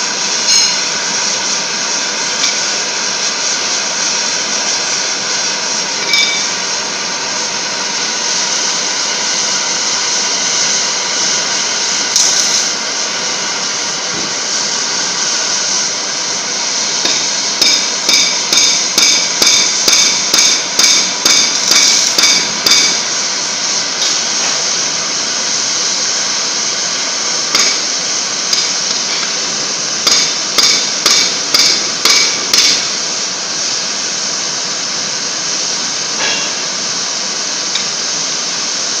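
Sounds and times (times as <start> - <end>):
cutting torch flame hissing: 0.0 - 39.0
sharp metallic ticks: 30.0 - 32.8.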